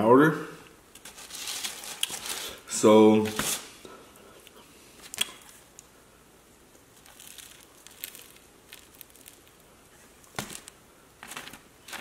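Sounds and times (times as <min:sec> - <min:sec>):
plastic shaker rustling: 0:07.0 - 0:09.7.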